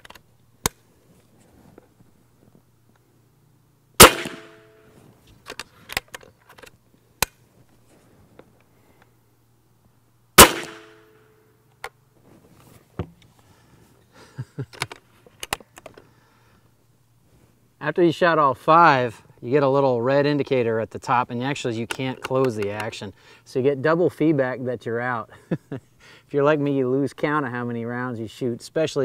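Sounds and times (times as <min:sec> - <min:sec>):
rifle handling clicks: 0:00.0 - 0:00.8, 0:04.0 - 0:04.6, 0:05.4 - 0:07.4
air rifle shot cracking: 0:04.0 - 0:04.7, 0:10.4 - 0:11.1.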